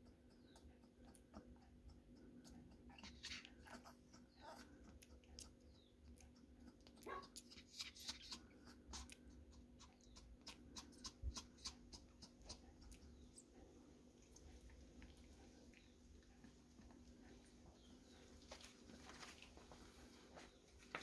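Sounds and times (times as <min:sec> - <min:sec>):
puppy squeaking: 0:02.7 - 0:04.7, 0:07.0 - 0:09.0, 0:09.8 - 0:12.8.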